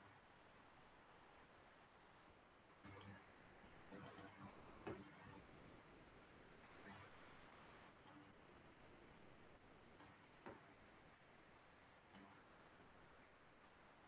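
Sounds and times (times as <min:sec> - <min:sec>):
sharp clicks: 0:02.8 - 0:03.2, 0:04.0 - 0:05.1
softer click: 0:02.8 - 0:03.2, 0:04.0 - 0:05.2, 0:10.0 - 0:10.6, 0:12.1 - 0:12.4.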